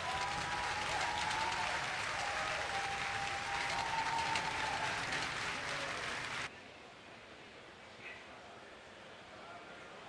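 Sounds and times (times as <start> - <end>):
crowd cheering and applauding: 0.0 - 6.5.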